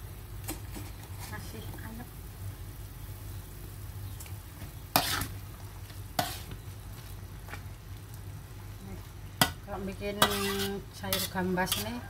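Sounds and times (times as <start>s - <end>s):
soup simmering: 2.1s - 9.6s
metal ladle scraping a wok: 4.9s - 5.4s, 6.2s - 6.5s, 9.4s - 12.0s.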